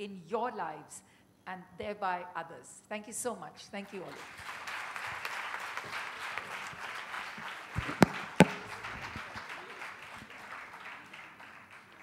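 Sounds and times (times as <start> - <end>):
audience applauding: 4.1 - 12.0
sharp loud knocks: 7.8 - 9.0.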